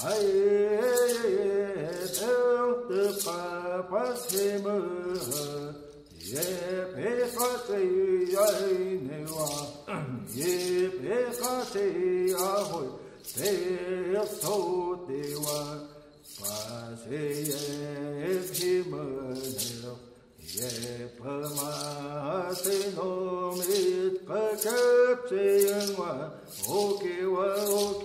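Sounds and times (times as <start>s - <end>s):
men singing in unison: 0.0s - 28.0s
hissing percussive stroke: 24.6s - 28.0s.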